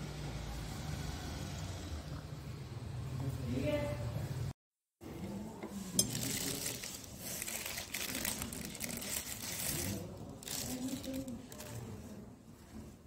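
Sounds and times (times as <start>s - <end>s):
faint background voices: 3.3s - 13.0s.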